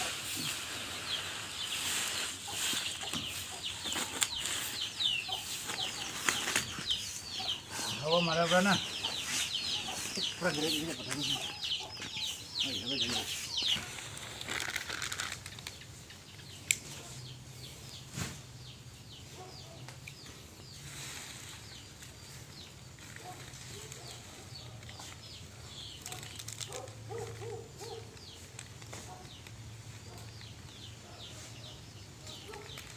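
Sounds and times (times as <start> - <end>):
chickens clucking: 0.0 - 14.2
chicks peeping: 0.0 - 14.4.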